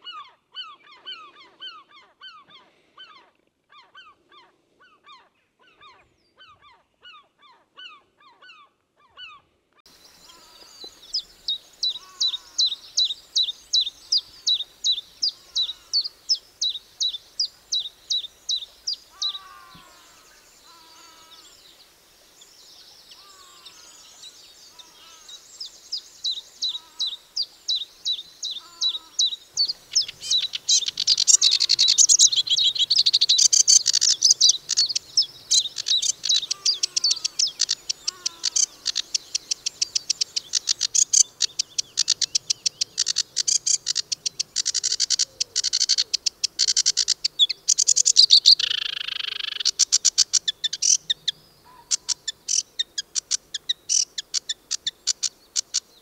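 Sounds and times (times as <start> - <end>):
faint hiss: 9.9 - 56.0
bird high sharp chirps: 10.2 - 21.4, 24.7 - 55.9.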